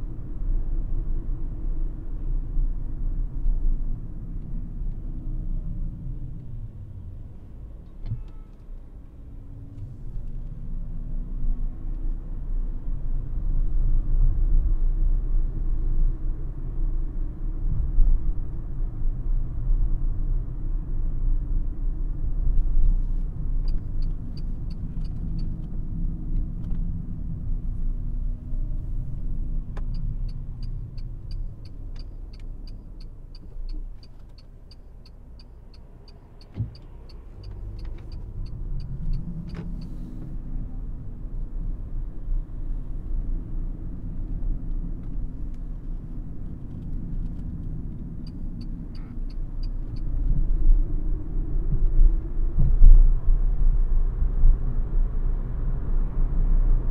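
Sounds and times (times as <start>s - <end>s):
turn signal ticking: 22.6s - 40.6s, 43.4s - 52.8s.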